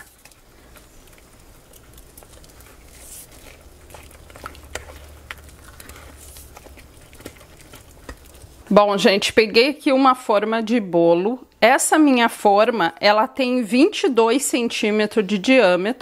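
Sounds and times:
wet stirring of batter: 0.0s - 9.4s.

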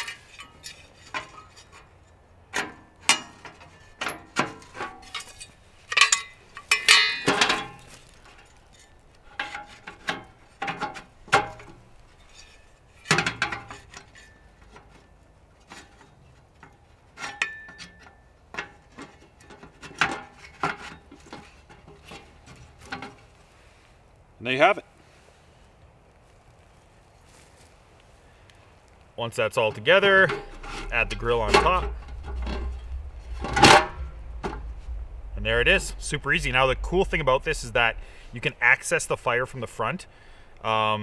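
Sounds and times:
metal panels clinking and knocking: 2.5s - 7.9s.

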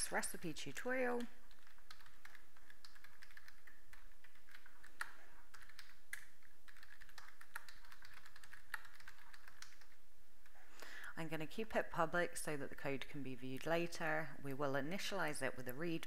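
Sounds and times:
computer keyboard typing: 0.0s - 10.6s.

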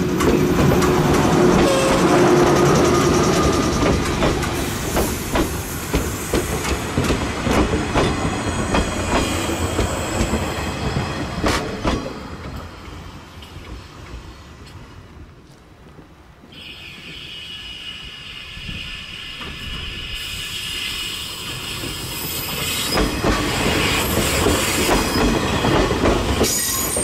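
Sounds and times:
train wheels clicking over rail joints: 0.0s - 14.9s, 21.1s - 27.0s
electric train rolling over track: 0.0s - 15.1s, 16.4s - 27.0s.

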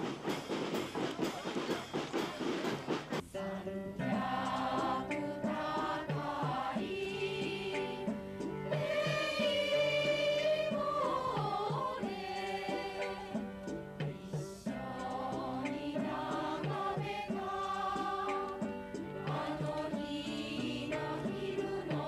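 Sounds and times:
women's choir singing: 3.5s - 22.0s.

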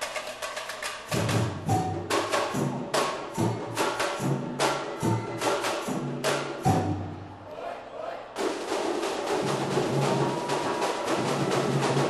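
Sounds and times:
high drums and tamborins: 0.0s - 7.2s, 8.4s - 12.0s
samba drum section playing: 0.0s - 7.3s, 8.4s - 12.0s.

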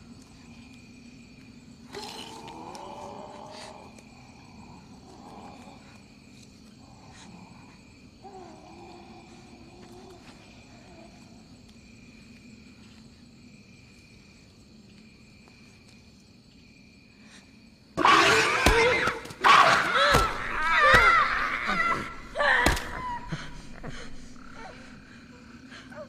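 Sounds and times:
night insects chirring: 0.0s - 26.0s
screaming and shrieking: 18.0s - 25.1s.

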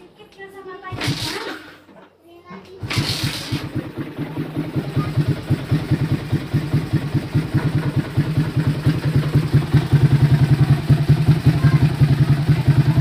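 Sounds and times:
motorcycle engine idling: 2.8s - 13.0s.

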